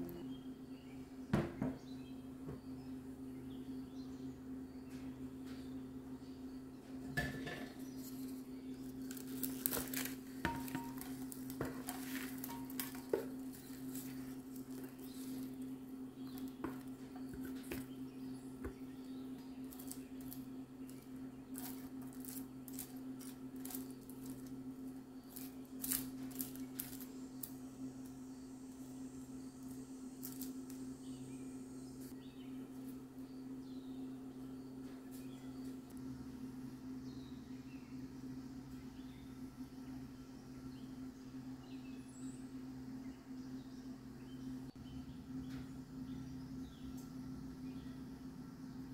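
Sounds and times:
steady low hum: 0.0 - 48.9
spatula scraping popcorn on glass: 7.5 - 18.0, 19.7 - 24.6.

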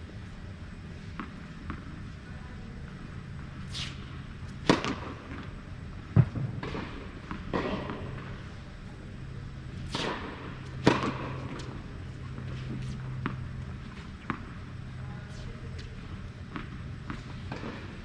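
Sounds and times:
low hum: 0.0 - 18.0
racket striking ball: 3.8 - 5.4, 6.1 - 8.5, 9.8 - 14.6
tennis ball bounces: 4.5 - 8.5, 9.8 - 15.0.

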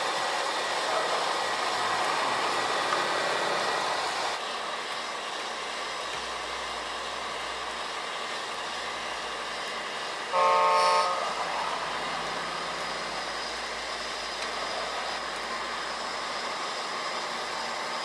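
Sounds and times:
toy truck horn toot: 10.3 - 12.7.

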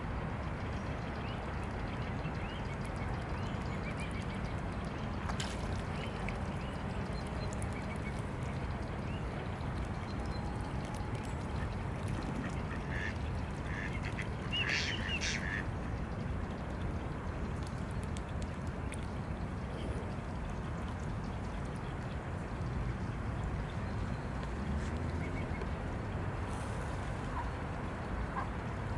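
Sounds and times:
ducks quacking: 12.4 - 15.6.

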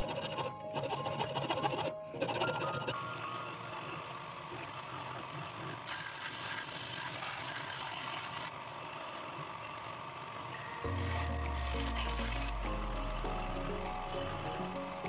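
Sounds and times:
belt sander running: 8.6 - 15.0
wood being sanded: 10.9 - 15.0.

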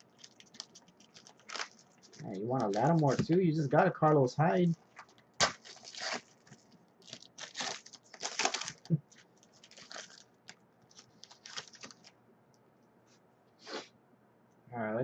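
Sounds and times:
foil wrapper crinkling and tearing: 0.0 - 3.4, 4.9 - 12.1.

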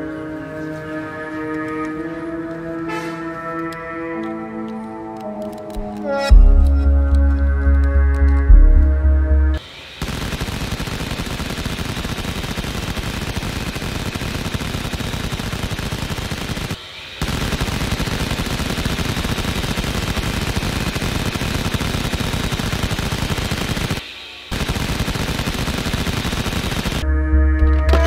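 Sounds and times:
machine-gun fire: 10.0 - 27.0.

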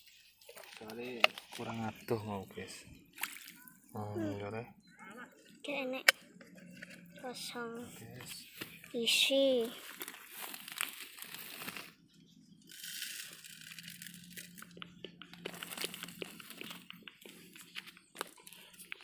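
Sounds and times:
small clicks and crackles: 0.0 - 1.8, 8.2 - 19.0
plastic bottle crinkling: 0.4 - 2.1, 9.6 - 12.1, 12.7 - 19.0
leaf rustling: 9.6 - 12.0, 12.7 - 14.6.

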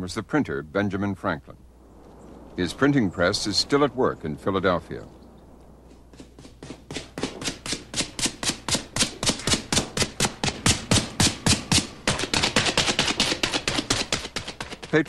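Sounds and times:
leather ink balls patting: 6.1 - 15.0.

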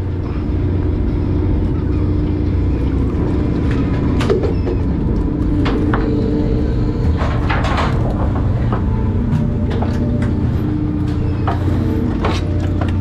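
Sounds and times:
boat engine droning: 0.0 - 13.0
knocks and clatters: 7.0 - 13.0.

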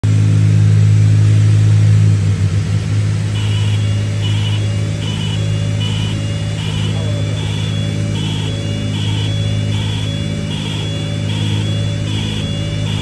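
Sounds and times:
twin piston engines droning: 0.5 - 13.0
high warning tone beeping: 3.3 - 13.0.

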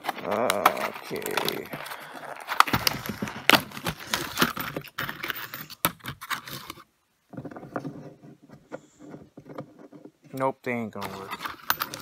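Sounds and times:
plastic bag crinkling: 0.0 - 5.8
screws rattling: 11.0 - 12.0.

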